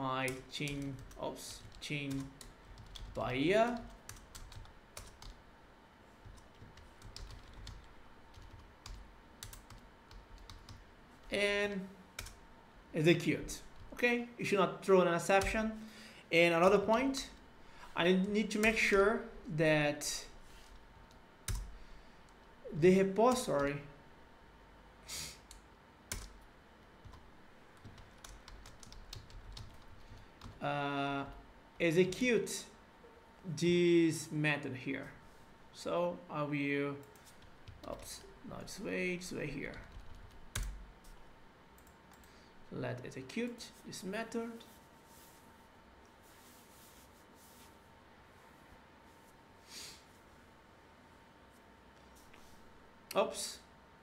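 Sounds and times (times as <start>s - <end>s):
keyboard typing: 0.3s - 5.4s, 6.2s - 10.8s, 26.1s - 26.4s, 27.8s - 30.6s, 39.7s - 40.8s.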